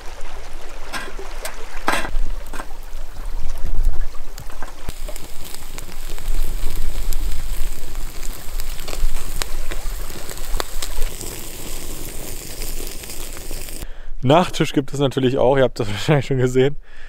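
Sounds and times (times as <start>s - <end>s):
embers crackling and popping: 0.6s - 13.9s
food sizzling on grill: 4.9s - 13.8s.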